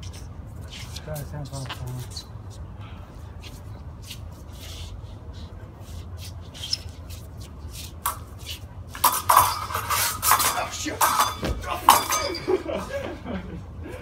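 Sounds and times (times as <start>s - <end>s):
steel blades clashing: 9.1s - 12.5s.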